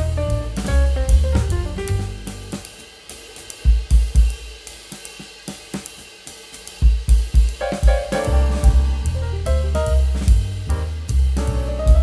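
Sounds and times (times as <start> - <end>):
heavy kick-drum hits: 0.0 - 2.8, 3.6 - 4.6, 6.8 - 12.0
drum beat with hi-hat: 0.0 - 12.0.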